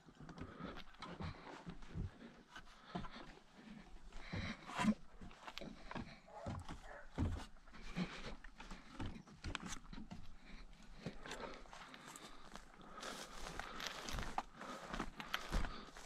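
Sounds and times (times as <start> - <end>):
boots knocking on wooden ladder: 4.2 - 11.3.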